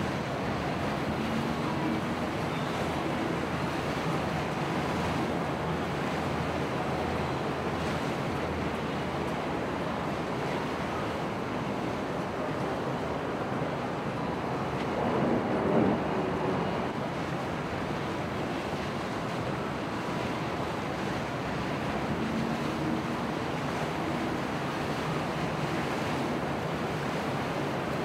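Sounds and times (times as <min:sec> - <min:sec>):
waves: 0:00.0 - 0:28.0
wind buffeting microphone: 0:14.4 - 0:18.3.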